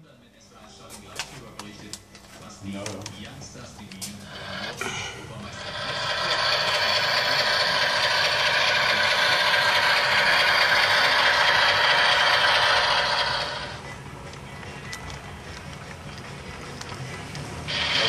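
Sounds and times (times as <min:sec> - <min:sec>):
diesel locomotives passing: 0:04.2 - 0:18.0
wheels clattering on track: 0:05.6 - 0:13.8.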